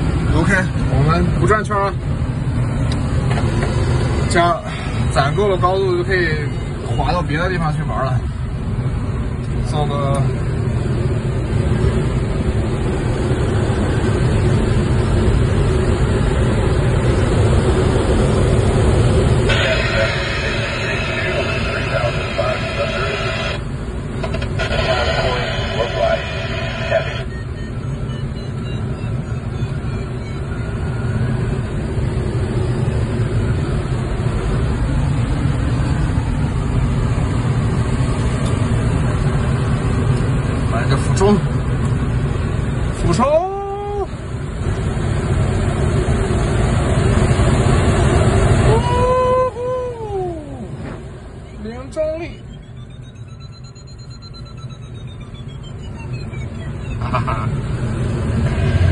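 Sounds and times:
air rushing through cockpit: 8.2s - 27.6s.

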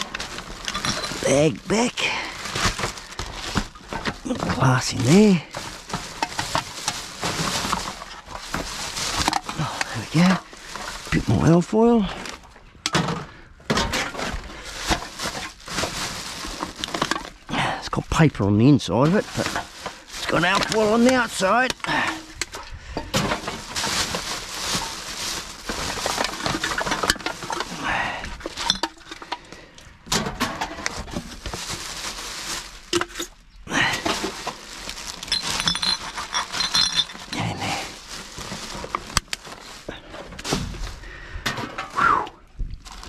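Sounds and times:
cans and bottles clinking: 0.0s - 1.4s, 19.0s - 31.8s, 32.9s - 39.3s
plastic bags rustling: 0.0s - 42.0s, 42.6s - 43.0s.

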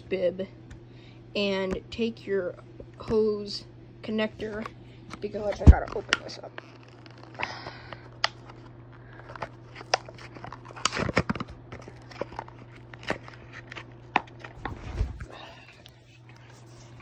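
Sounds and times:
packaging clicking and snapping: 5.9s - 14.5s
packaging crinkling: 5.9s - 14.6s.

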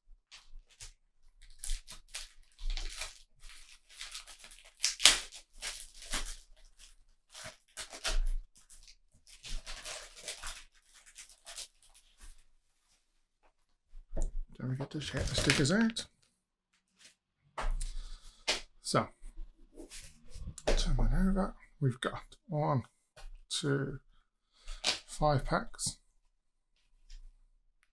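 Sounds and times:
packaging tearing and rustling: 0.6s - 12.4s, 15.1s - 16.0s.

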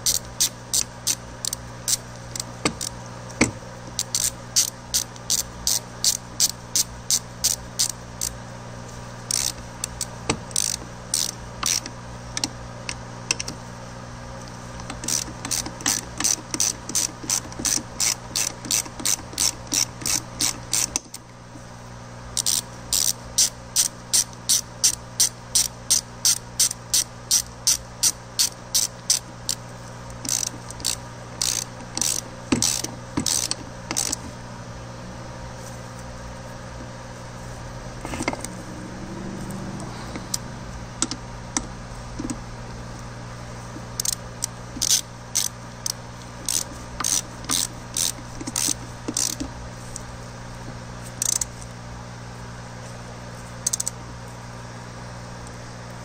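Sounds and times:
ratchet wrench clicking: 0.0s - 8.4s, 9.2s - 13.6s, 14.4s - 21.3s, 22.4s - 34.3s, 39.3s - 42.4s, 43.8s - 50.0s, 51.2s - 51.7s, 53.6s - 54.0s.

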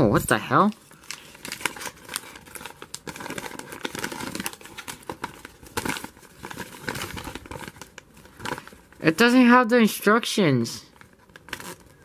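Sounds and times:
plastic bag crinkling: 0.3s - 9.3s, 10.9s - 12.0s.

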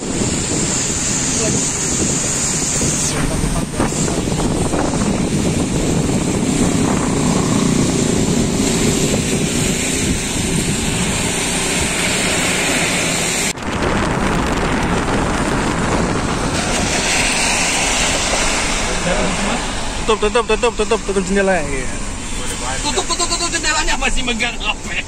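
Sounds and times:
road noise on wet road: 0.0s - 25.0s
wind rushing through car window: 0.0s - 25.0s.

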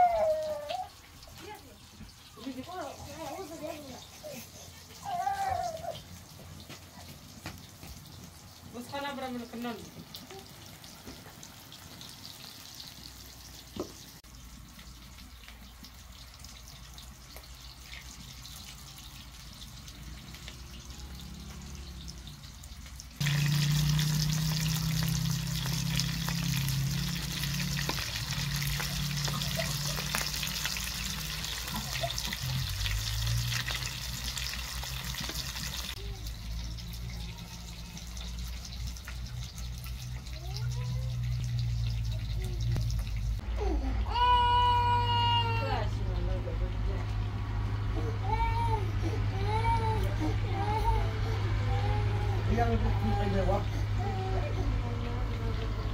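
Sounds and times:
dough sizzling in oil: 0.0s - 43.4s.

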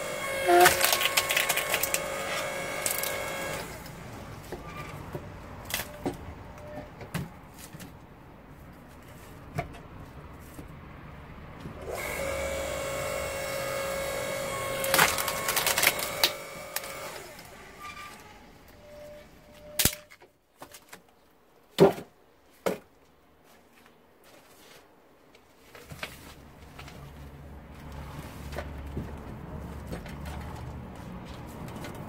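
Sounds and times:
log splitter whining: 0.0s - 4.0s, 11.8s - 18.4s
log splitting with cracks: 0.5s - 3.6s, 14.8s - 17.2s.

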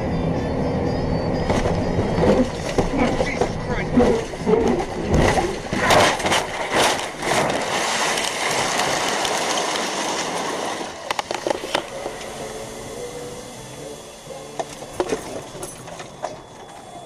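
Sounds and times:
car crash impacts and crunches: 1.5s - 11.8s
car scraping and sliding: 1.5s - 16.8s
debris and glass clattering: 14.7s - 16.8s.

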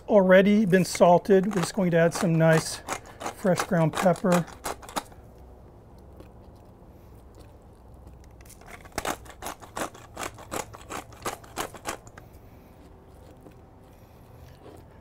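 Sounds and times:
pepper mill grinding: 0.4s - 5.2s, 8.2s - 12.2s.

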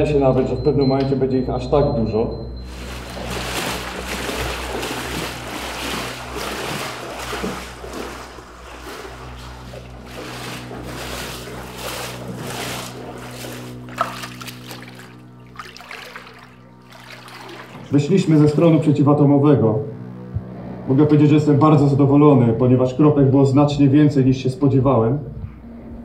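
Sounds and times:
low musical drone: 0.0s - 26.0s
water splashing and sloshing: 2.6s - 19.0s.

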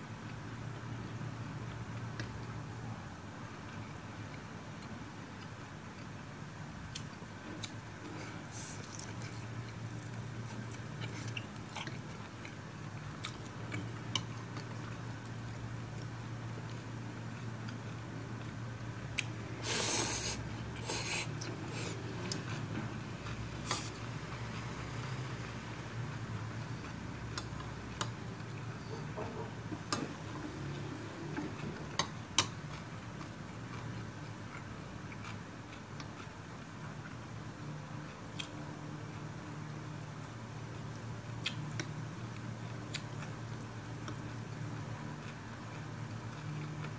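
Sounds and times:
person chewing: 6.9s - 25.0s, 26.4s - 37.2s, 38.1s - 39.3s, 41.4s - 46.9s.

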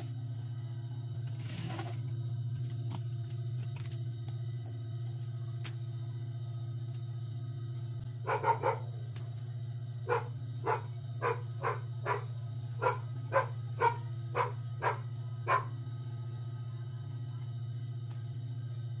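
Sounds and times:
low hum: 0.0s - 19.0s
dog barking: 8.2s - 9.0s, 10.0s - 15.8s.

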